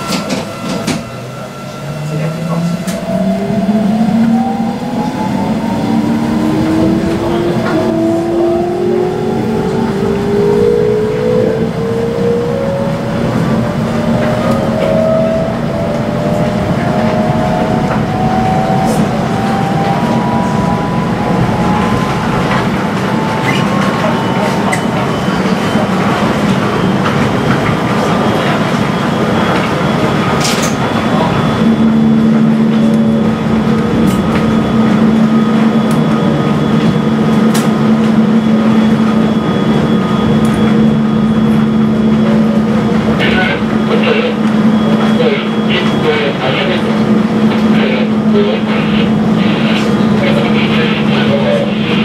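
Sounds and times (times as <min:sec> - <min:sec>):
train rumbling on rails: 0:00.0 - 0:52.0
train traction motors whining: 0:00.0 - 0:52.0.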